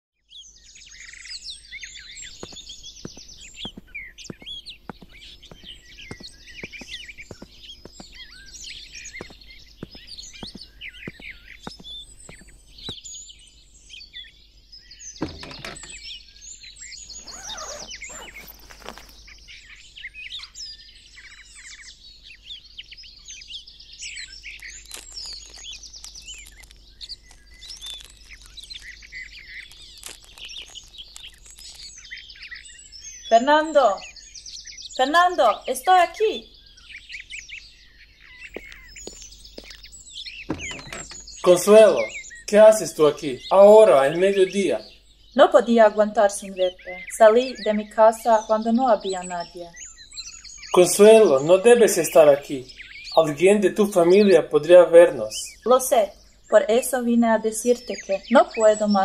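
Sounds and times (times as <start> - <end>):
small birds chirping: 0.2 - 59.0
footsteps on paving: 1.9 - 13.0, 17.1 - 19.3, 24.6 - 32.1, 38.4 - 44.6
thump: 15.2 - 15.9, 40.5 - 41.2
rustling: 17.0 - 19.3.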